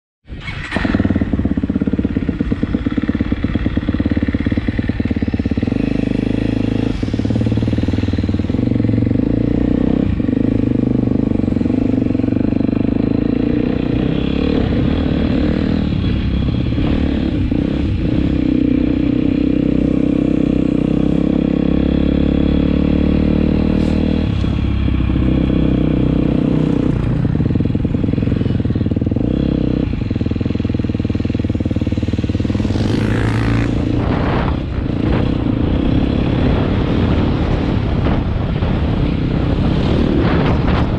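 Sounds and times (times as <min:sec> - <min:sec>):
motocross bike engine: 0:00.3 - 0:40.9.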